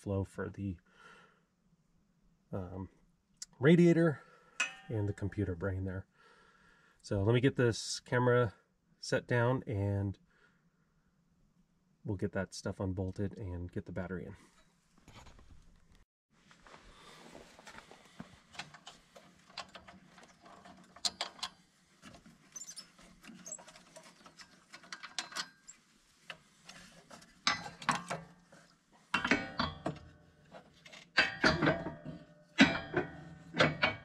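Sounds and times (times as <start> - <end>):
metal parts rattling: 18.6 - 25.8, 26.7 - 28.4, 29.1 - 34.0.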